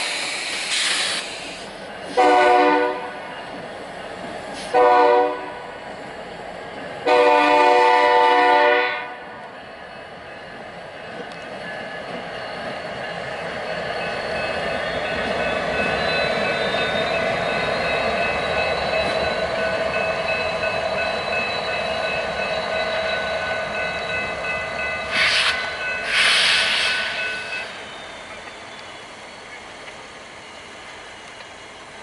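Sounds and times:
air hiss bursts: 0.0 - 2.3, 4.5 - 4.8, 25.1 - 27.8
diesel locomotive engines running: 0.0 - 32.0
train wheels on rail: 0.0 - 32.0
high steady tones: 9.7 - 29.6.

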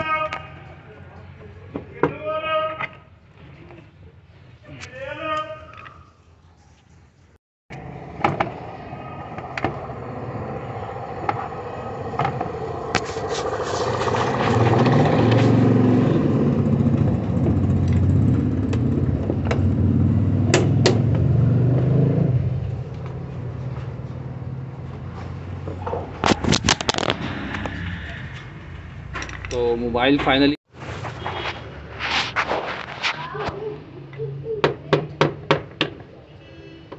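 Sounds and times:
engine running: 7.7 - 25.8.

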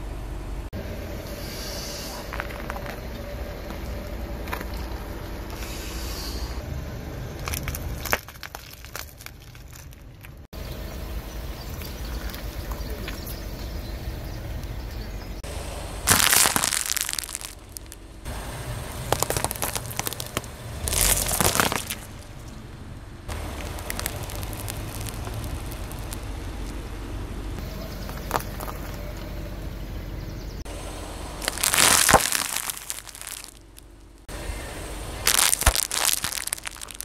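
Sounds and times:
tyre crushing small objects: 7.4 - 10.4, 16.1 - 18.0, 18.9 - 22.6, 23.3 - 26.3, 31.4 - 34.2, 35.2 - 37.0.

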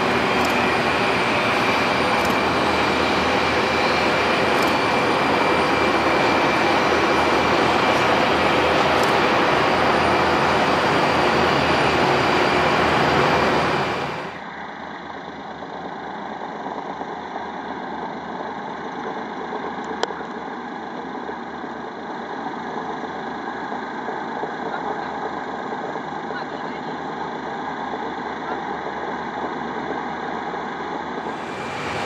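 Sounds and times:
aircraft piston engines taxiing: 0.0 - 32.0.

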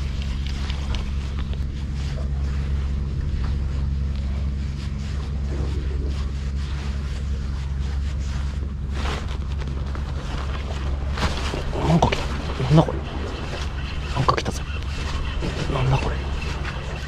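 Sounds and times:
low drone: 0.0 - 17.0
wind and waves rushing: 8.9 - 17.0.

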